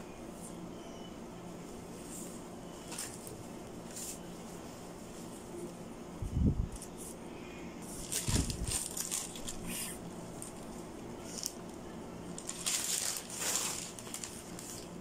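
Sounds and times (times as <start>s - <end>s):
plastic packaging crinkling: 2.8s - 4.1s, 7.8s - 15.0s
clothes rustling: 12.4s - 15.0s.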